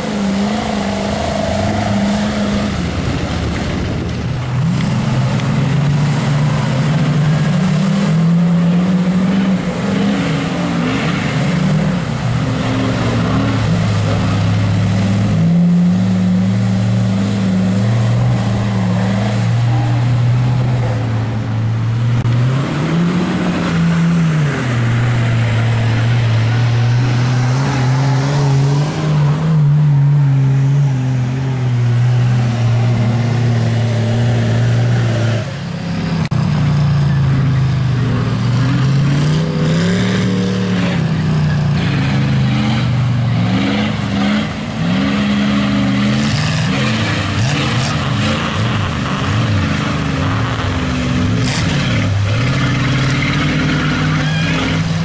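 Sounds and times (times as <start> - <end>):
truck engines revving: 0.0 - 55.0.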